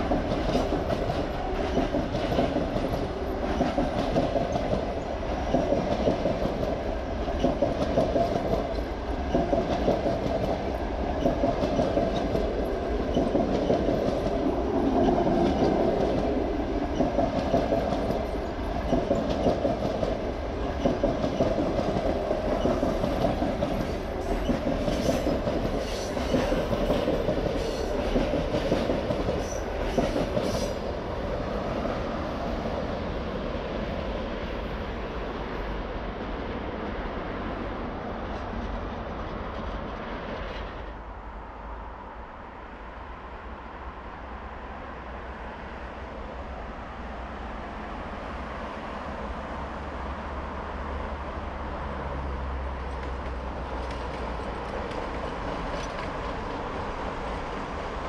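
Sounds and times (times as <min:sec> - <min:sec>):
wheels clacking over rail joints: 0:00.0 - 0:31.1, 0:52.8 - 0:58.0
train coaches rumbling past: 0:00.0 - 0:58.0.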